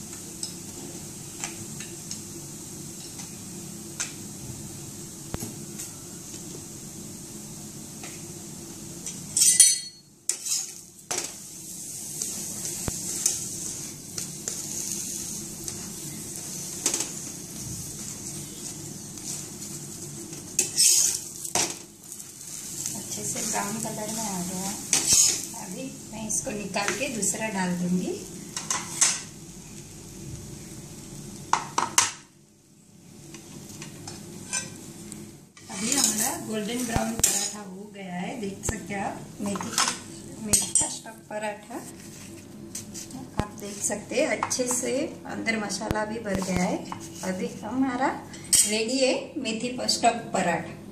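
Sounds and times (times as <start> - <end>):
flatbread sizzling in fat: 0.0 - 48.7
spatula scraping pan: 10.3 - 11.3, 20.6 - 21.7, 22.5 - 25.8, 35.6 - 37.6.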